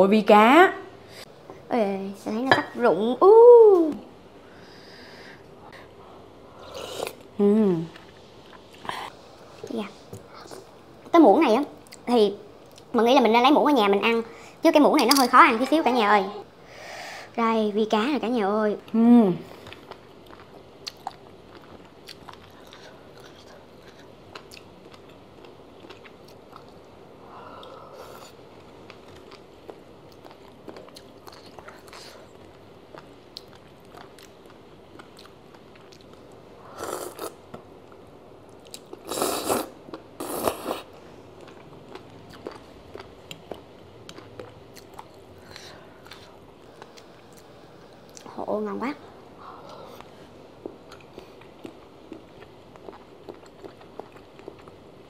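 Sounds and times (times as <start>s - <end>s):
person chewing: 19.6s - 26.9s, 27.6s - 47.5s, 49.6s - 54.8s.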